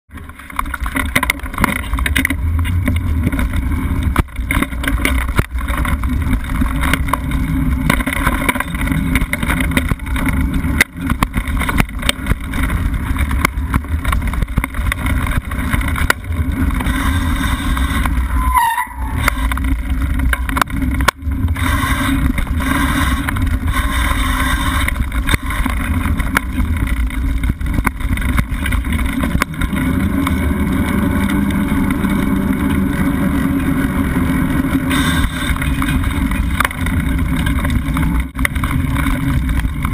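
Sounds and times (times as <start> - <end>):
bike rattling over bumps: 0.1 - 39.9
wind and tyre rumble: 0.1 - 39.9
high squeak: 16.9 - 19.5, 34.9 - 35.6.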